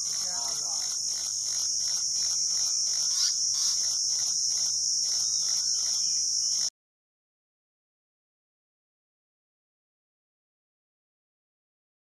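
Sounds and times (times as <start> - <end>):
pulsing high insect drone: 0.0 - 6.7.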